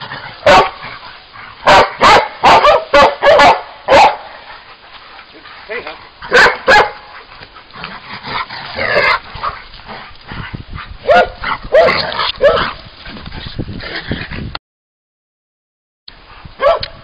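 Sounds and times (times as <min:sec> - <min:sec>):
dogs barking: 0:00.0 - 0:10.0, 0:11.0 - 0:12.8, 0:16.6 - 0:17.0.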